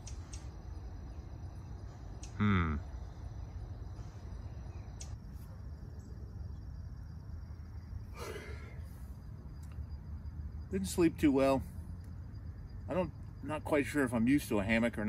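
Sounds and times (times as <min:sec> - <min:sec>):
man sighing: 0:02.4 - 0:02.8, 0:08.2 - 0:08.8.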